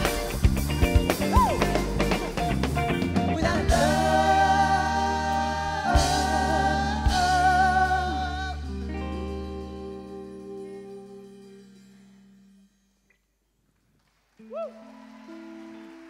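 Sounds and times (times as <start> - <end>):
live band playing: 0.0 - 12.2.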